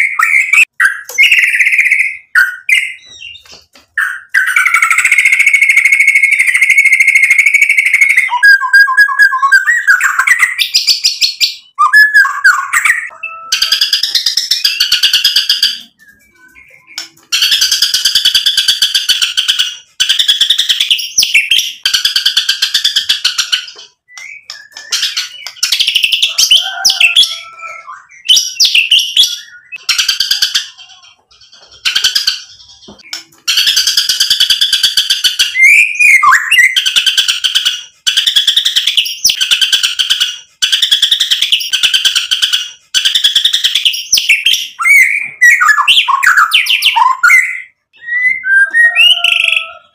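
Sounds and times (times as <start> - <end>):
songbird singing: 43.4 - 49.9.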